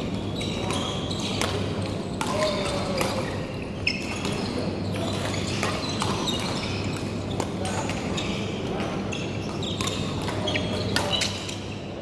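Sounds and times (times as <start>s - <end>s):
racket hitting shuttlecock: 0.0s - 3.3s, 8.7s - 11.6s
low hall hum: 0.0s - 12.0s
shoes squeaking on floor: 0.0s - 12.0s.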